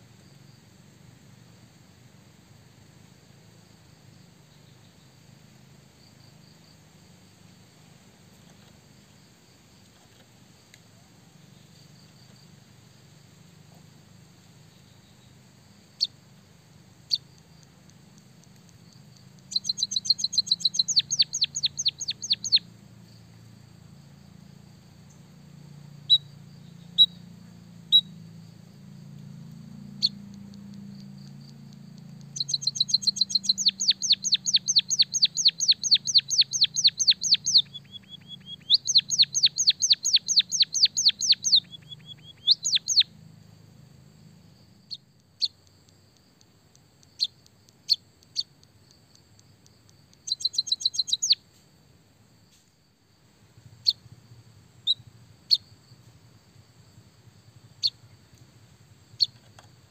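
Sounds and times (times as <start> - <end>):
bird chirping and trilling: 19.5 - 22.6, 32.3 - 43.1, 50.2 - 51.4.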